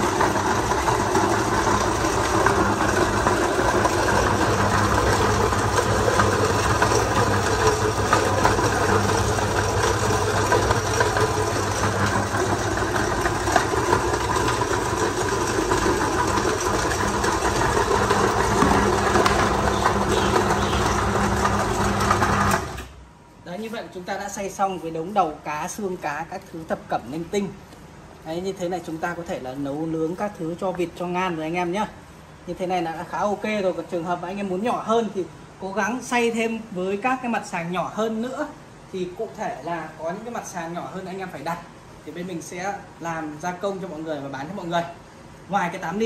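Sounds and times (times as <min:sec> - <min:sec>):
meat grinder crackling bones: 0:00.0 - 0:22.9
electric motor hum: 0:00.0 - 0:23.0.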